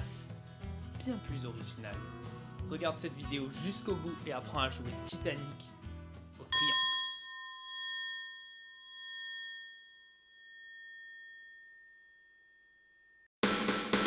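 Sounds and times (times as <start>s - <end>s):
triangle ringing: 6.5s - 13.3s.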